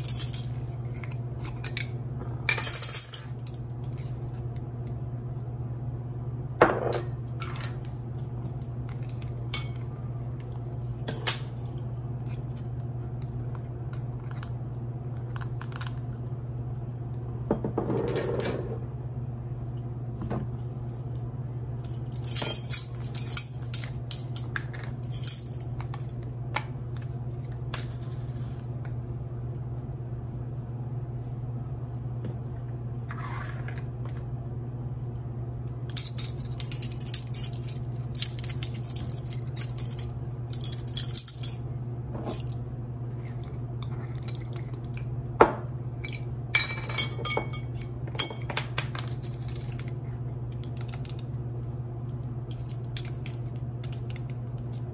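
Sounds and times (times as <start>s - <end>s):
steady low hum: 0.0s - 54.9s
metal spoons clinking: 22.2s - 25.6s, 46.0s - 49.9s.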